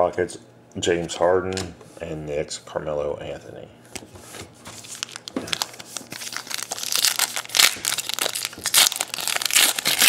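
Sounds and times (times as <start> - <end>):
foil wrapper tearing and crinkling: 4.8 - 10.0.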